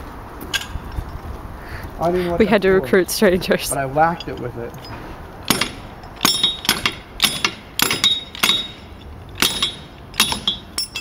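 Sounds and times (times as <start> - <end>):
metal tool clanking on car wheel: 4.1 - 11.0.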